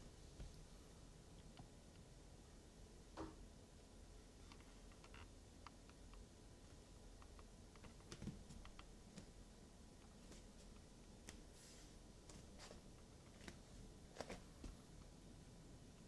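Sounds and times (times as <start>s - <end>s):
faint irregular clicks and taps: 1.4s - 2.1s, 4.4s - 9.4s.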